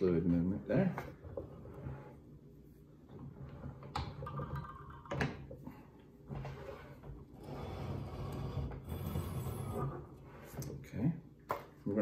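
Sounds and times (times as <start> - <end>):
low rumbling scraping noise: 6.5 - 10.8.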